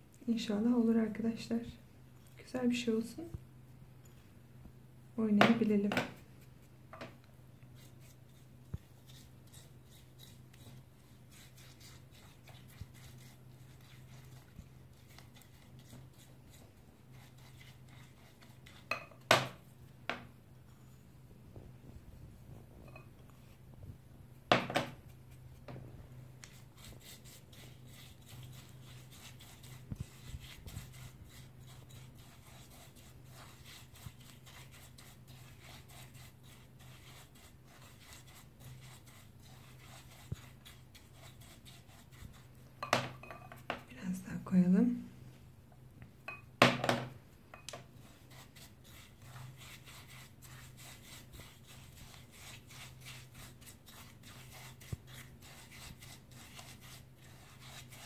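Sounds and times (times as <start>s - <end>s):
spoon scraping in glass bowl: 17.1s - 19.3s, 22.8s - 23.3s, 26.5s - 43.7s.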